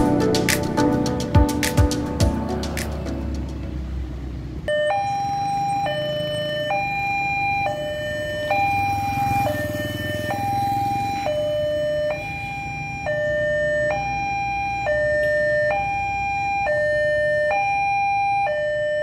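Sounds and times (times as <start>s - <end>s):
level crossing two-tone alarm: 4.7s - 19.0s.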